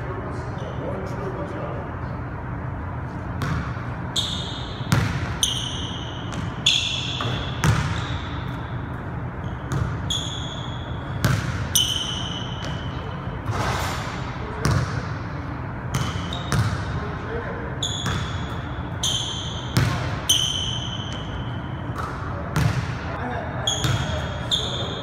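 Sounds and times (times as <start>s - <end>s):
sneaker squeaks: 0.4s - 1.1s, 3.1s - 15.1s, 15.8s - 25.0s
basketball bouncing on wooden floor: 4.9s - 5.4s, 7.2s - 8.2s, 9.7s - 10.0s, 11.2s - 11.7s, 15.9s - 16.8s.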